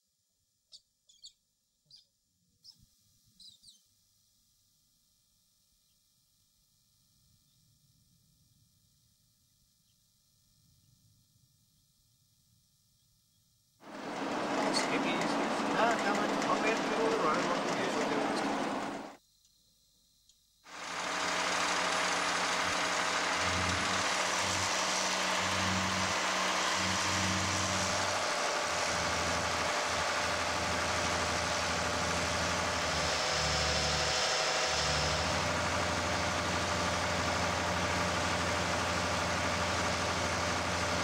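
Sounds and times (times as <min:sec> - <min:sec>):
drill rig engine drone: 0:13.8 - 0:19.2, 0:20.7 - 0:41.0.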